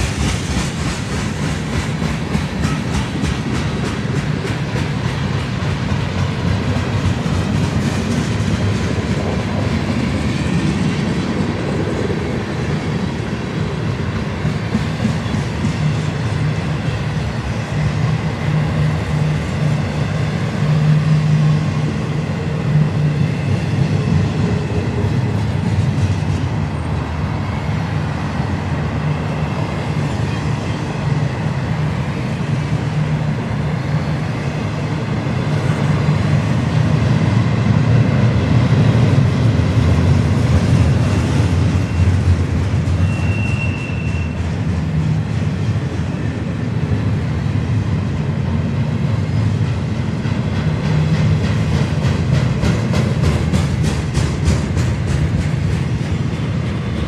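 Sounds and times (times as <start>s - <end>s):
freight train wheels rumbling: 0.0s - 57.0s
short high squeal: 43.0s - 44.4s.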